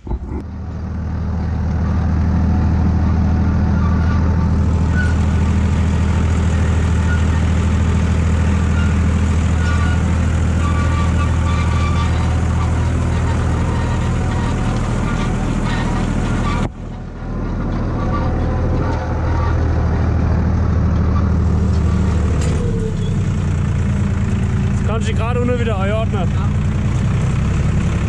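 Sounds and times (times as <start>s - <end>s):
tractor diesel engine running: 0.0s - 28.0s.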